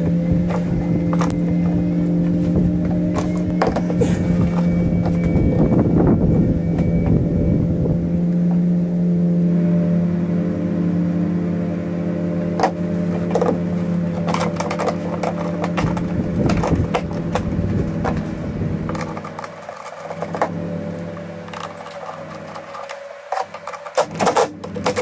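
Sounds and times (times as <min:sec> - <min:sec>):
steady hum: 0:00.0 - 0:25.0.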